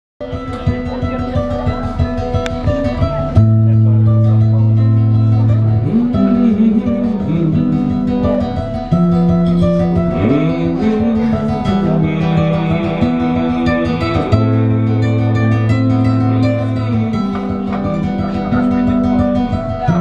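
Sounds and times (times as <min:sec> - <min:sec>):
fingerpicked acoustic guitar: 0:00.2 - 0:20.0.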